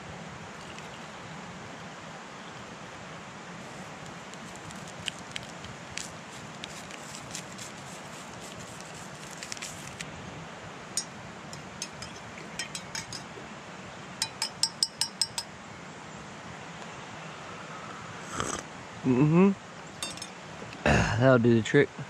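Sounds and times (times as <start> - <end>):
metal spoon clinking in mug: 11.0 - 13.3, 14.2 - 15.5, 20.0 - 20.4.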